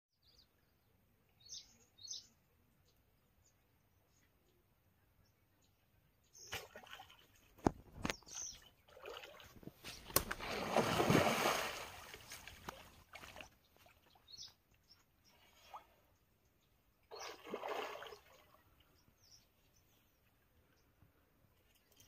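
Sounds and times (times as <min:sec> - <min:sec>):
fish splashing in water: 0:08.9 - 0:13.6, 0:17.1 - 0:18.6.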